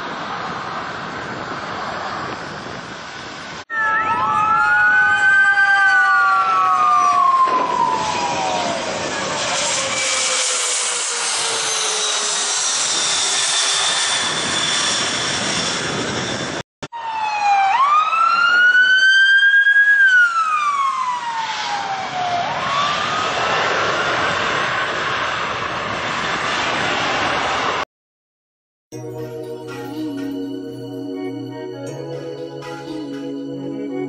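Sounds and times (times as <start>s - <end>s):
traffic: 0.0s - 4.1s
ambulance sirens wailing: 3.7s - 10.1s, 16.9s - 23.2s, 29.0s - 34.0s.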